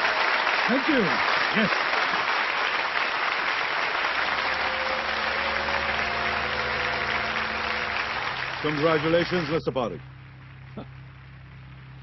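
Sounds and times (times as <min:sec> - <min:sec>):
audience applauding: 0:00.0 - 0:12.0
low drone of held tones: 0:04.1 - 0:12.0.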